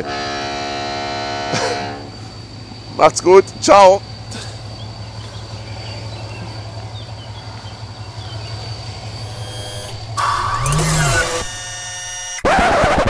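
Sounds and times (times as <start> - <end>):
ship engine hum: 0.0 - 12.3
faint bird chirps: 4.2 - 11.6.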